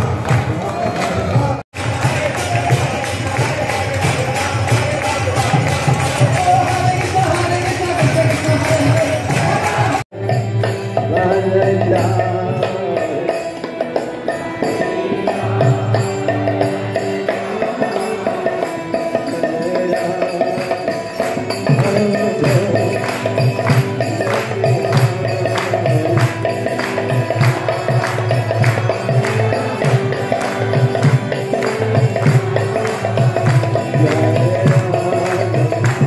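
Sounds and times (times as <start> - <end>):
rhythmic jingling percussion: 0.0 - 36.0.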